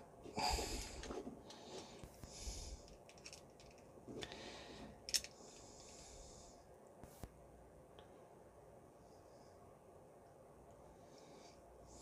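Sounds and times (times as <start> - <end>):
breathing through the nose: 0.3 - 3.0, 4.2 - 6.6
small plastic clicks: 2.8 - 3.9, 5.1 - 5.4.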